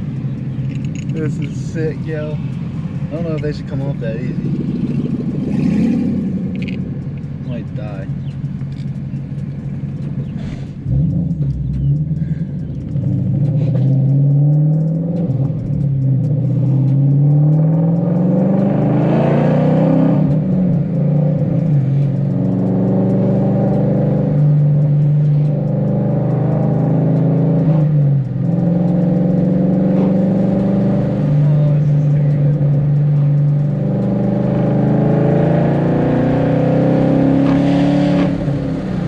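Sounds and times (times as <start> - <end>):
car exhaust revving: 0.0 - 39.0.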